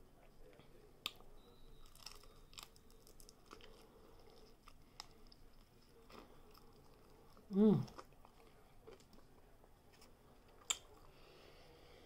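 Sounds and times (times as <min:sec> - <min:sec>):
chewing crispy food: 0:01.7 - 0:11.2.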